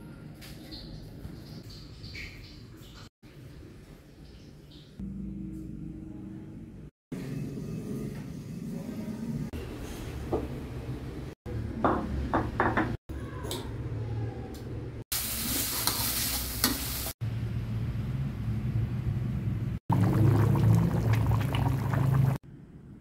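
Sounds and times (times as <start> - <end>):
paste sizzling: 19.9 - 22.4.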